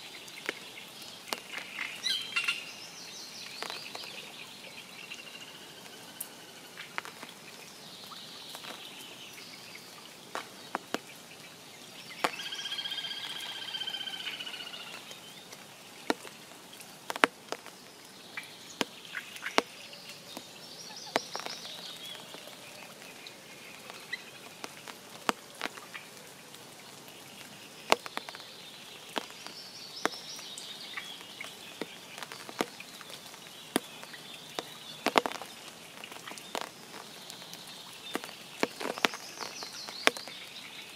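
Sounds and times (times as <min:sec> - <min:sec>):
birds singing: 0:00.0 - 0:17.0, 0:17.6 - 0:40.9
raindrops tapping: 0:00.0 - 0:40.9
frog trilling: 0:12.3 - 0:15.0.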